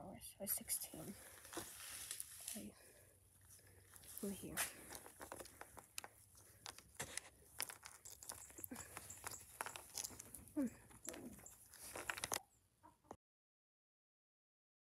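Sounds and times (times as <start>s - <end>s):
rustle of hands and sleeve: 1.0s - 2.7s
plastic figurines clicking on brick: 4.8s - 12.4s.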